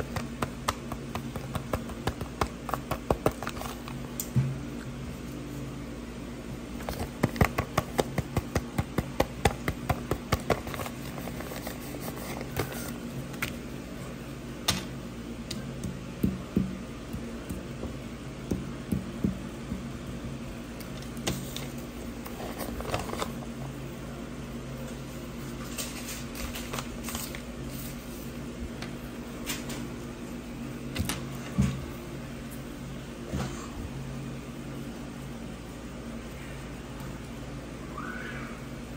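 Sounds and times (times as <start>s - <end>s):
paper rustling: 9.4s - 13.6s, 21.3s - 23.4s, 25.6s - 28.2s.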